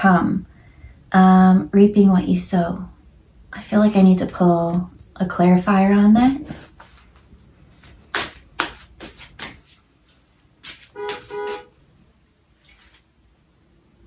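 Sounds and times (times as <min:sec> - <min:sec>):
cards being shuffled: 0:06.4 - 0:11.7, 0:12.6 - 0:13.0
car horn toots: 0:10.9 - 0:11.8.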